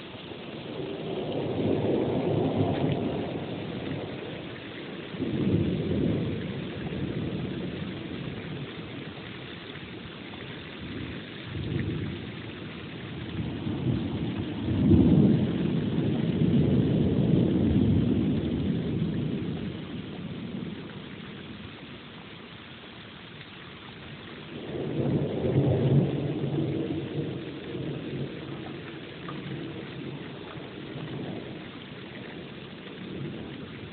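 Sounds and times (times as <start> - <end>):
steady rain: 0.0 - 33.9
thunder rolling: 0.7 - 4.5, 5.1 - 9.0, 10.9 - 20.8, 24.6 - 31.7.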